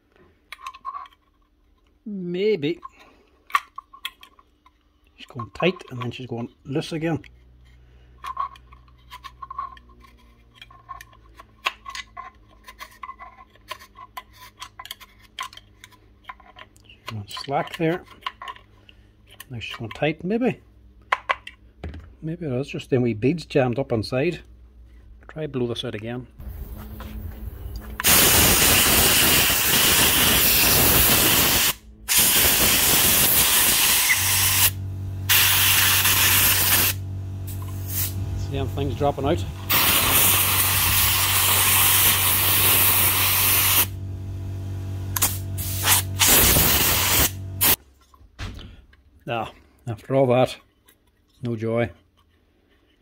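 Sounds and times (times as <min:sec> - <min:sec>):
low steady hum: 0:00.2 - 0:28.6, 0:33.8 - 0:49.8
compressed air hissing blasts: 0:26.4 - 0:44.0, 0:45.1 - 0:47.8.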